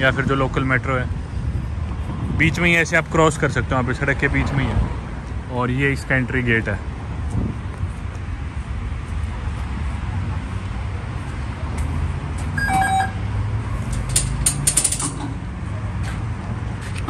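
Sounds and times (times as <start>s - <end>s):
low street rumble: 0.0s - 17.0s
card reader beep: 12.6s - 13.2s
turnstile metallic clicks and rattles: 13.7s - 15.5s.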